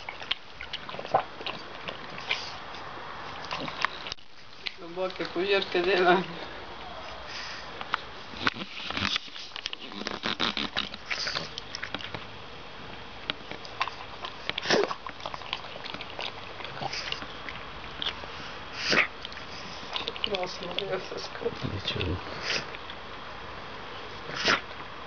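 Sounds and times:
loud slurps: 8.4s - 11.9s, 18.2s - 20.1s, 24.2s - 24.7s
dog lapping water from bowl: 13.6s - 21.1s.

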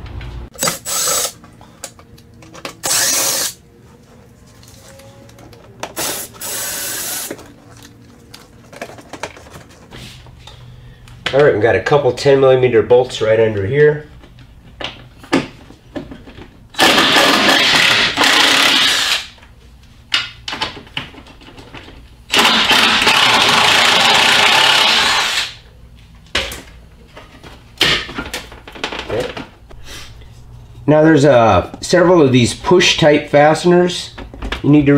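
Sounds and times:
impact wrench running: 0.5s - 1.4s, 2.6s - 3.6s, 5.9s - 7.5s, 16.8s - 19.4s, 22.3s - 25.6s.

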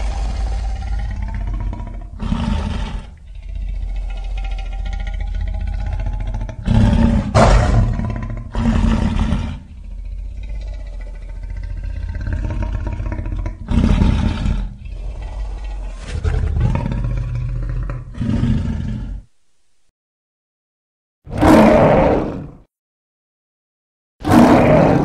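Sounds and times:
monster growling: 0.0s - 19.2s, 24.2s - 25.0s
deep monster roars: 0.0s - 19.3s, 21.3s - 22.7s, 24.2s - 25.0s.

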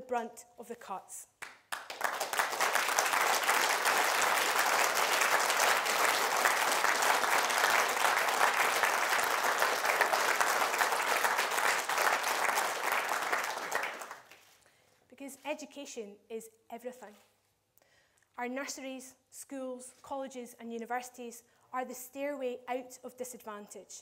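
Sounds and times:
audience applauding: 1.7s - 14.5s.

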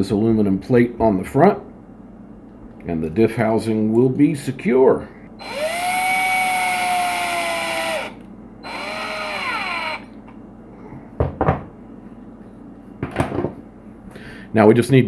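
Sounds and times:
cordless drill motor whining: 5.4s - 10.2s.

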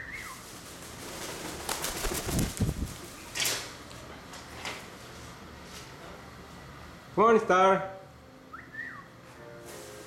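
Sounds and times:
whooshing wingbeats: 0.7s - 3.2s.

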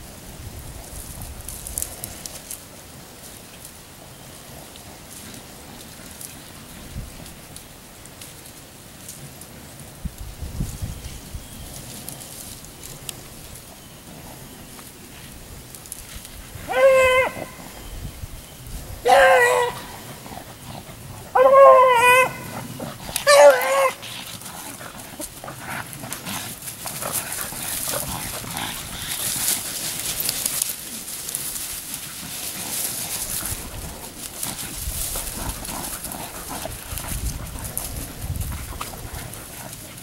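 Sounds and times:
beagle baying: 16.6s - 17.8s, 19.0s - 24.3s.

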